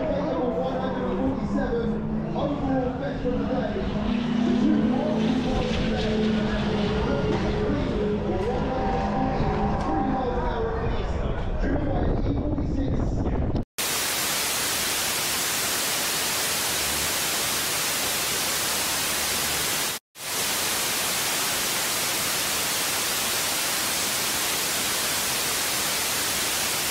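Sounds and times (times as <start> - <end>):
static hiss: 13.8 - 26.9.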